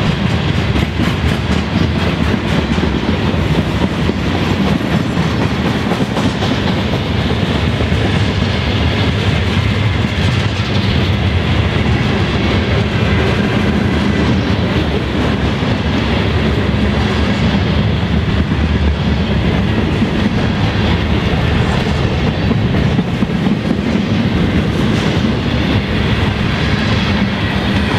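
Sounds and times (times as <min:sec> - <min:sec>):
freight train wheels rumbling: 0:00.0 - 0:27.9.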